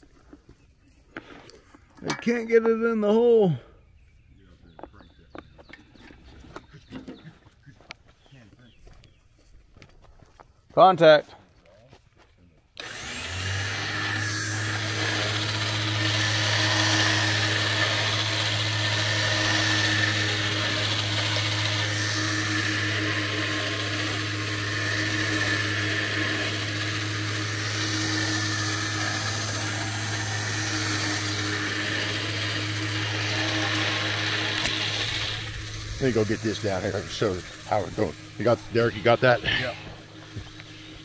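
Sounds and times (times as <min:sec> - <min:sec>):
electric winch whining: 0:12.8 - 0:41.0.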